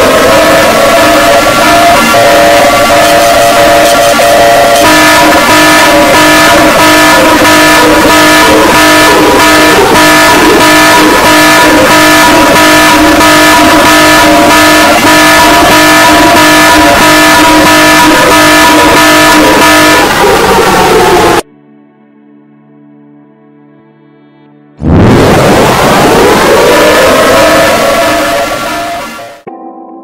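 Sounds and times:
electronic emergency alarm tone: 0.0s - 21.4s.

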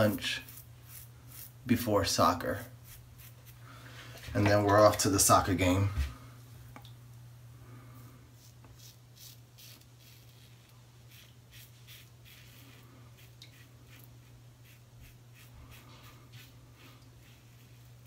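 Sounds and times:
razor scraping stubble: 0.0s - 1.6s, 2.5s - 3.6s, 8.4s - 18.0s.

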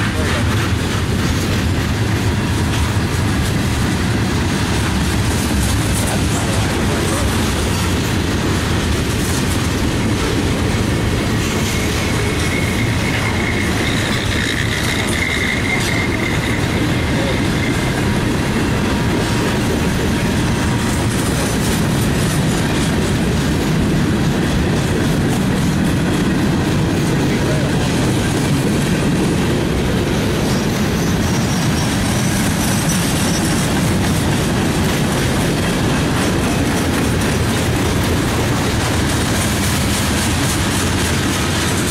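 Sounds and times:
train wheels rumbling on rail: 0.0s - 41.9s
faint high wheel squeals: 11.6s - 18.1s, 30.4s - 33.6s.

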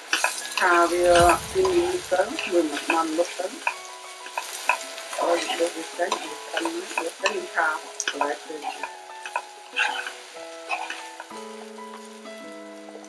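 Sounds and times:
vegetables sizzling in oil: 0.0s - 13.0s
metal spatula scraping pan: 8.1s - 11.2s.

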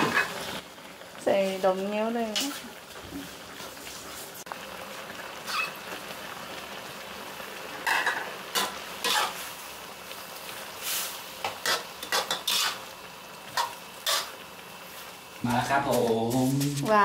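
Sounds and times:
curry sizzling: 0.0s - 17.0s
metal spatula scraping a wok: 5.4s - 5.8s, 7.9s - 9.5s, 10.8s - 12.8s, 13.6s - 14.4s.

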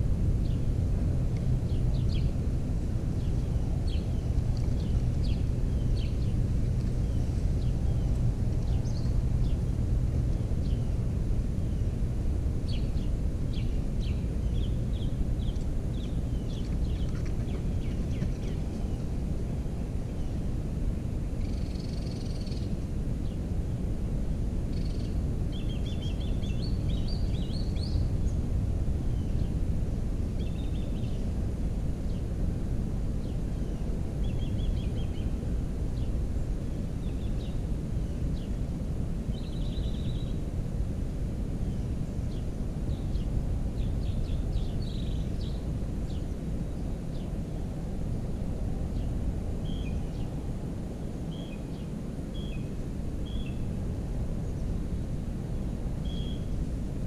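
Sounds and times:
low outdoor rumble: 0.0s - 57.0s
small birds chirping: 1.4s - 12.0s, 12.6s - 23.5s, 24.7s - 29.6s, 30.4s - 31.4s, 41.6s - 47.5s, 51.3s - 53.7s, 56.0s - 56.6s.

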